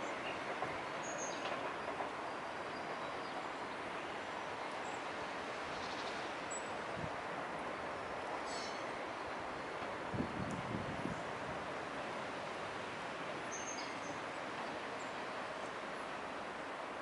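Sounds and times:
rushing outdoor background noise: 0.0 - 17.0.

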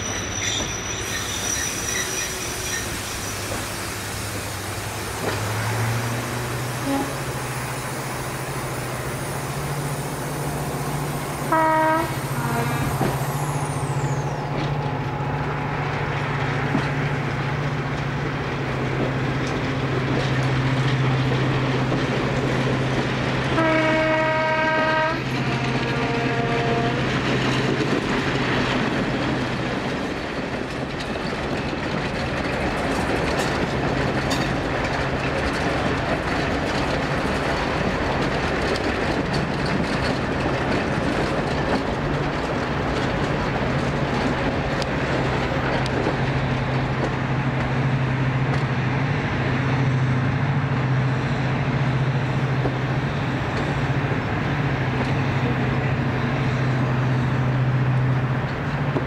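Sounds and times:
diesel locomotive engine drone: 0.0 - 59.0
locomotive horn blasts: 6.8 - 7.4, 11.4 - 13.0, 23.6 - 27.0.

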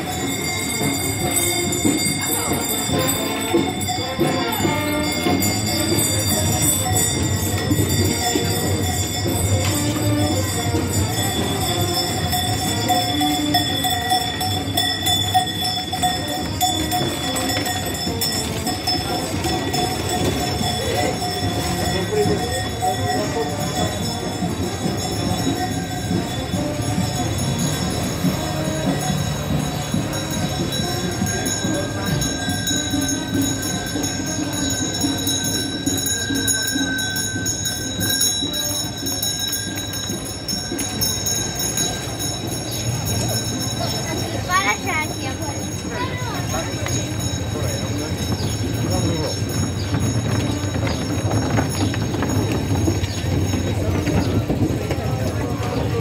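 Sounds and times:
harness bells jingling: 0.0 - 56.0
murmur of street noise: 0.0 - 56.0
wooden cart axle squealing: 46.7 - 56.0.

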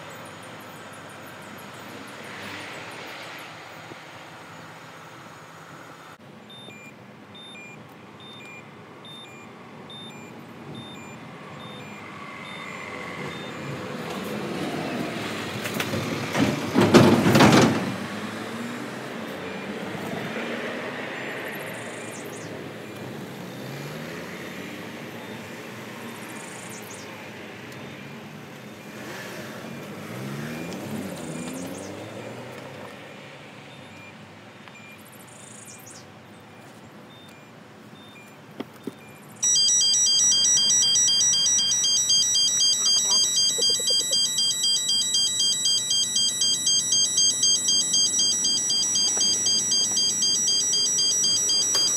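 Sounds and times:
short electronic beeps: 6.5 - 13.8, 37.1 - 38.4, 39.0 - 51.9.

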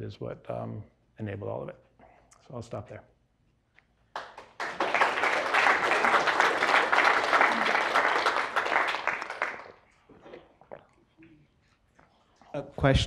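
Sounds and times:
audience applauding: 4.1 - 9.8.

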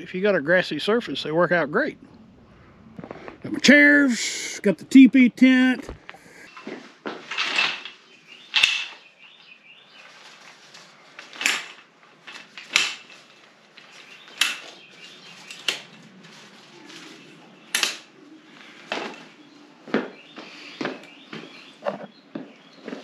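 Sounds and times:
metal frame clacking: 7.2 - 9.1, 11.2 - 14.8.

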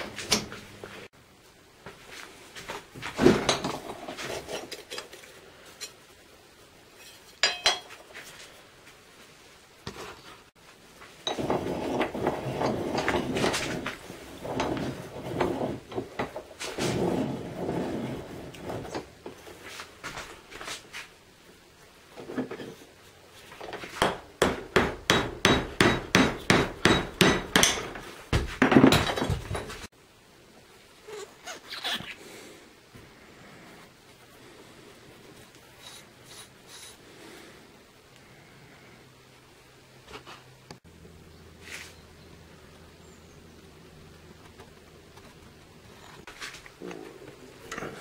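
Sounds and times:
rough rubbing noise: 11.4 - 21.1.

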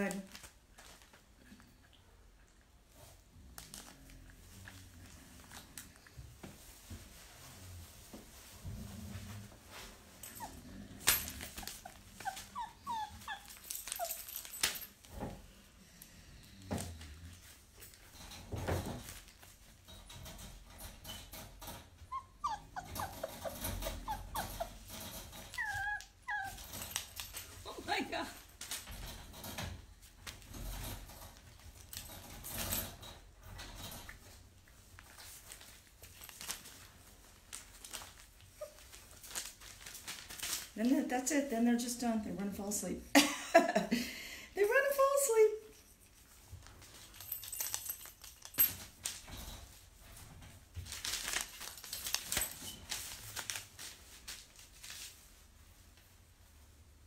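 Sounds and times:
puppies scuffling and rustling: 0.0 - 43.9, 44.6 - 57.0
puppy whimpering: 10.3 - 14.3, 22.0 - 26.9, 38.5 - 39.0.

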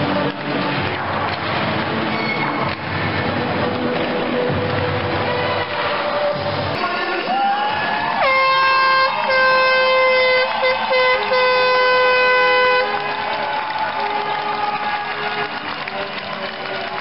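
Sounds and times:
crowd clapping and cheering: 0.0 - 17.0
air horn: 8.2 - 13.2.

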